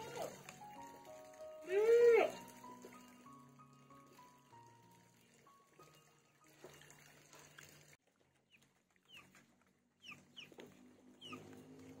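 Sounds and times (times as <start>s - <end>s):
faint chicken peeps: 8.4s - 11.9s.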